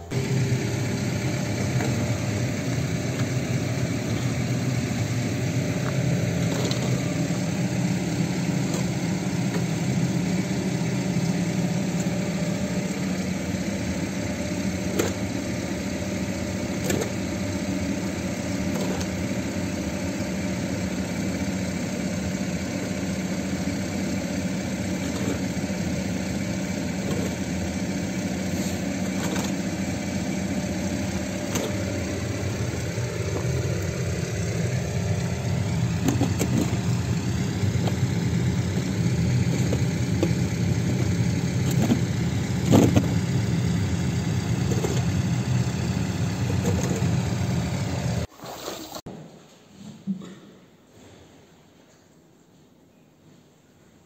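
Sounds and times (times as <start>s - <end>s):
vehicle engine idling: 0.0s - 48.3s
plastic shovel scraping grain: 28.5s - 29.6s.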